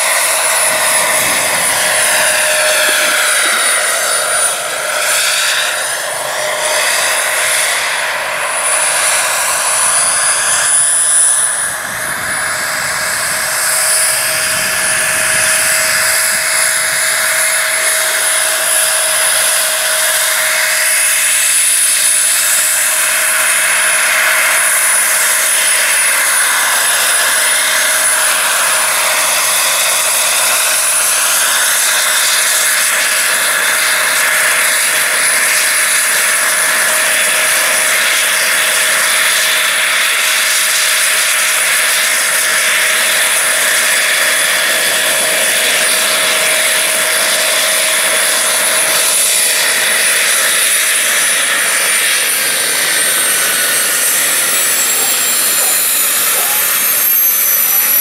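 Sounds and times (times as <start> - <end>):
rotors rushing: 0.0 - 19.8, 43.0 - 58.0
model helicopter turbine whine: 0.0 - 58.0.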